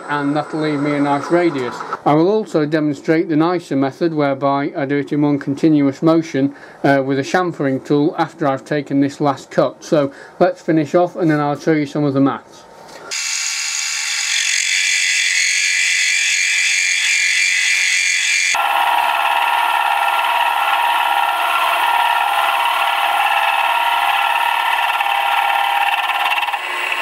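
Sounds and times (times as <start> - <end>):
milling machine cutting whine: 0.0 - 2.0, 13.1 - 27.0.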